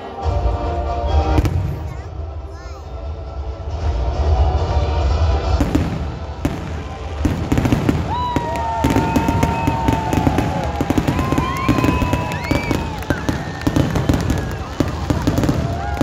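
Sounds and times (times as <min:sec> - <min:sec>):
fireworks crackling and banging: 0:01.3 - 0:02.1, 0:04.7 - 0:16.0
fireworks whistling: 0:05.6 - 0:16.0.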